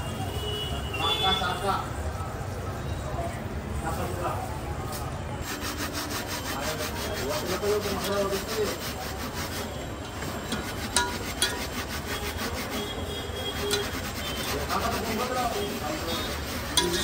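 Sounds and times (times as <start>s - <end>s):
metal spatula scraping pot: 5.4s - 17.0s.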